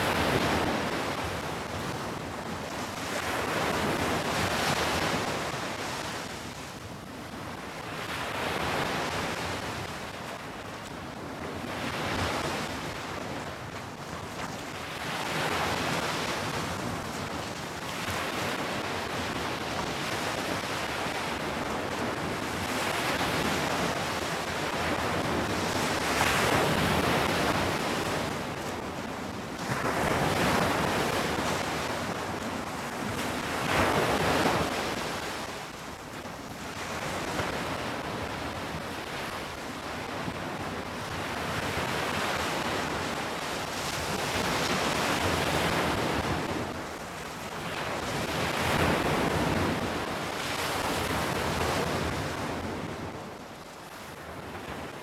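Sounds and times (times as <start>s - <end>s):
sea waves breaking on beach: 0.0s - 55.0s.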